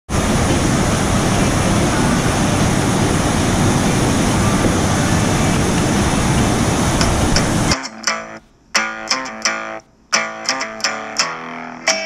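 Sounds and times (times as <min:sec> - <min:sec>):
river water rushing: 0:00.1 - 0:08.5.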